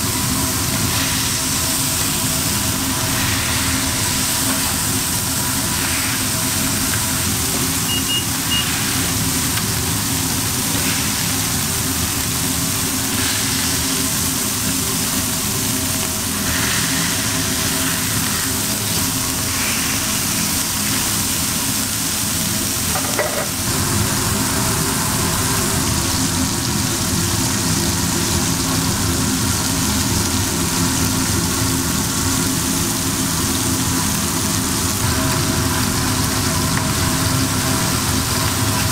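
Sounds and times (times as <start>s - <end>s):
meat sizzling on a griddle: 0.0s - 38.9s.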